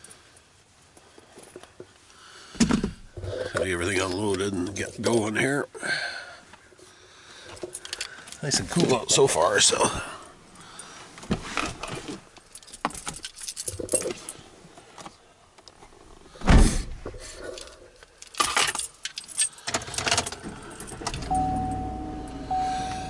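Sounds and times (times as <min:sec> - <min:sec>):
keys jangling: 0:12.5 - 0:14.3, 0:17.6 - 0:21.3
low steady hum: 0:20.6 - 0:23.0
electronic chime: 0:21.3 - 0:23.0.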